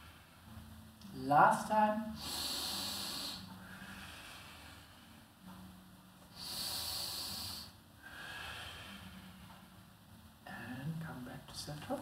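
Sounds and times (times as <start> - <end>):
woman breathing: 0.0 - 0.7, 2.2 - 5.5, 6.3 - 9.6
strong hissing exhale: 2.2 - 5.1, 6.3 - 9.2.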